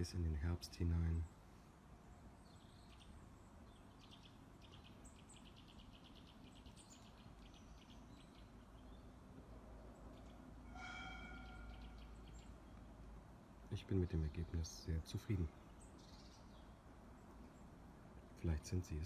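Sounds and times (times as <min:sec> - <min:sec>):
distant bird chirps: 0:00.0 - 0:19.0
short pitched call: 0:10.7 - 0:12.1.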